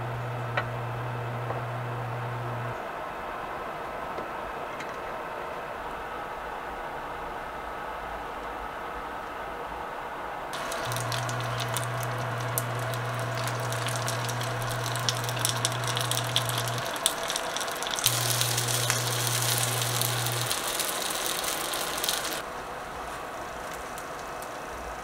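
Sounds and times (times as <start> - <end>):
dumplings sizzling in hot oil: 10.6 - 25.0.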